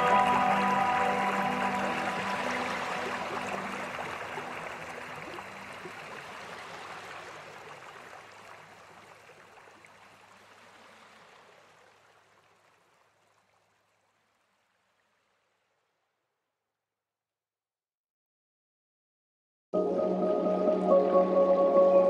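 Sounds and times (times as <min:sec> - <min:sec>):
held music notes: 0:00.0 - 0:05.3, 0:19.8 - 0:22.0
rushing stream water: 0:00.0 - 0:15.1.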